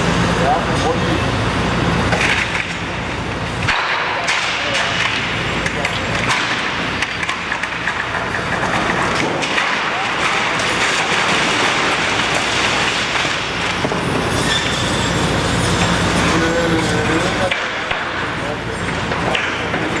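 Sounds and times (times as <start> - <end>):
excavator engine: 0.0 - 20.0
glass breaking: 3.7 - 15.7
debris crashing: 3.7 - 18.2
metal grinding and screeching: 10.2 - 17.5.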